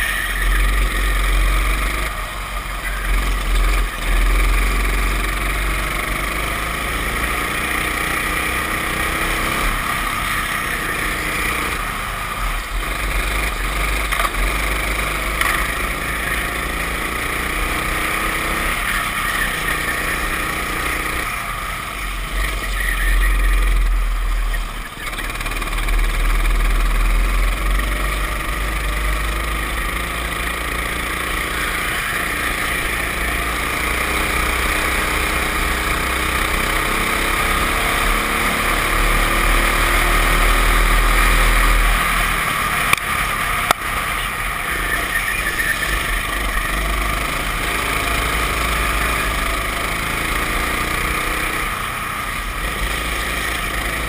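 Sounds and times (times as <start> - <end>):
kart engine running hard: 0.0 - 54.0.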